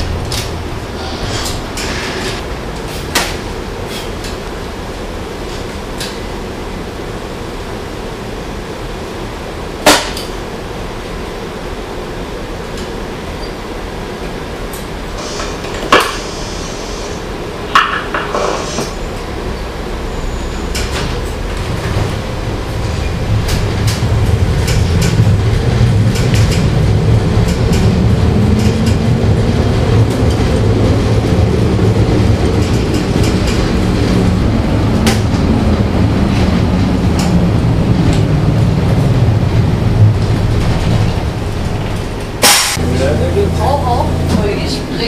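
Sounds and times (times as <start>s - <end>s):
tram motor hum rising: 0.0s - 45.0s
wheels clicking over rails: 20.6s - 45.0s.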